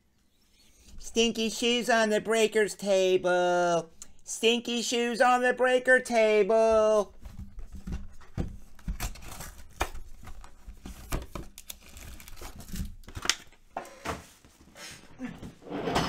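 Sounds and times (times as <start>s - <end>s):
foil packs crinkling: 8.7s - 13.6s
box being torn open: 8.8s - 13.5s.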